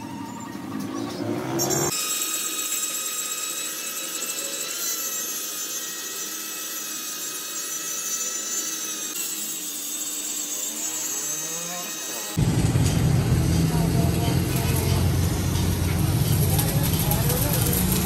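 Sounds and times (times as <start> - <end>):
angle grinder cutting steel: 0.0 - 12.4, 13.5 - 18.0.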